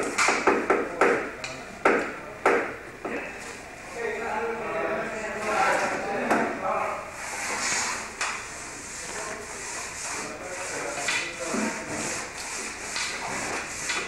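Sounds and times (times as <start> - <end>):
scraping and rubbing on wood: 7.2 - 14.0.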